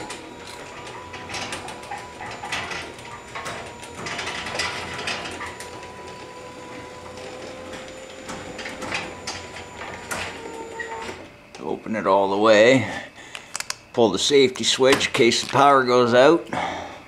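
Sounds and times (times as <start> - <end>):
garage door opener motor hum: 0.0 - 13.0.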